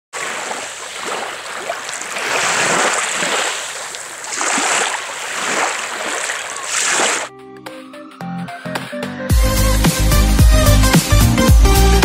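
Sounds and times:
waves washing over pebbles: 0.2s - 7.3s.

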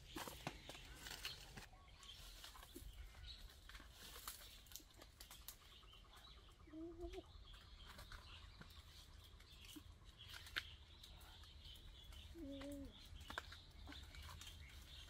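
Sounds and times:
rustles of tree climbing: 0.0s - 6.1s
faint bird chirps: 0.0s - 15.0s.

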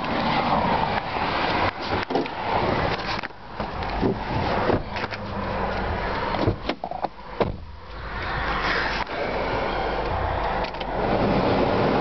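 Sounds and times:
car blower fan rushing air: 0.1s - 12.0s.

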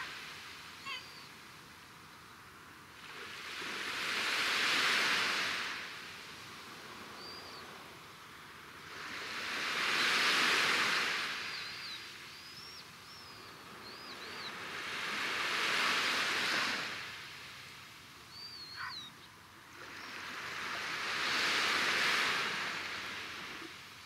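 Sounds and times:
small sea waves washing ashore: 0.0s - 24.0s
bird chirping: 7.2s - 7.6s, 11.5s - 14.6s, 18.3s - 19.4s.

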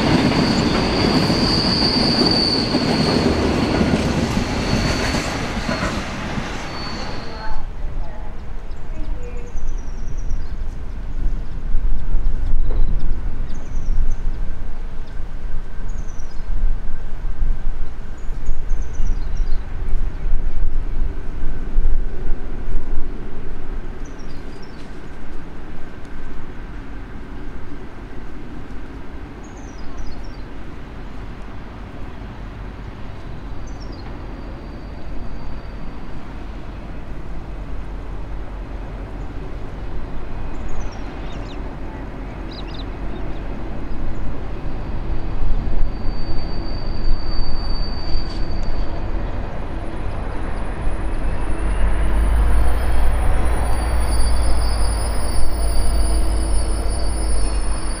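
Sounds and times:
birds chirping: 42.4s - 44.0s.

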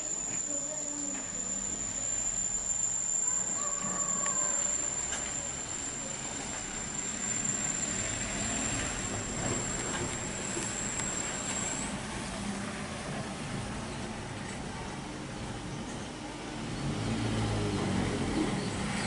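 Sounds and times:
high-pitched insect drone: 0.0s - 9.1s.

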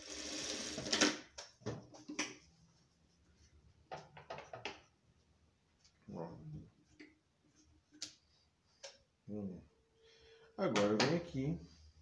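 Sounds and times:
sewing machine stitching: 0.0s - 1.2s.

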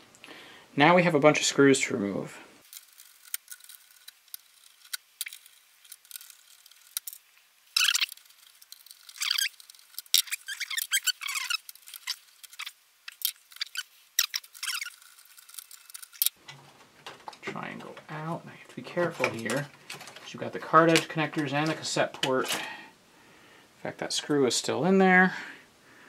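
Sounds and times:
screwdriver squeaky scrapes and clicks: 7.8s - 16.4s.

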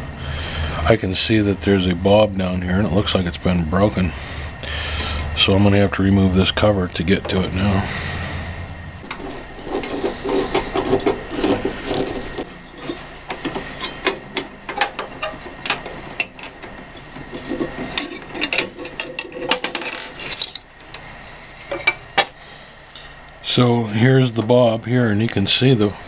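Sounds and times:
hands handling microwave parts: 9.0s - 22.4s.

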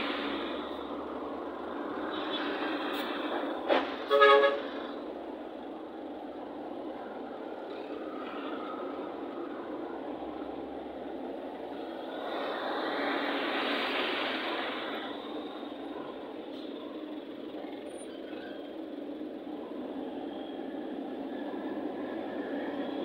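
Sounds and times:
road traffic: 0.0s - 23.0s
vehicle horn honking: 4.1s - 4.7s.

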